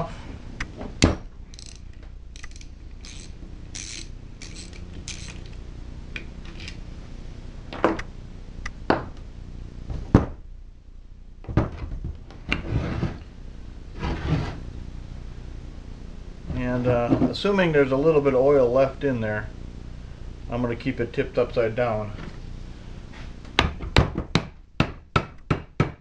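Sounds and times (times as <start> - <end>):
socket ratchet clicking: 1.5 - 5.5.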